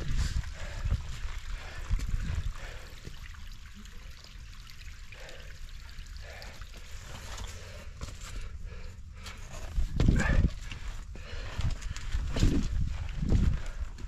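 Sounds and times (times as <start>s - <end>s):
wind rumbling on microphone: 0.0s - 3.0s, 9.5s - 14.0s.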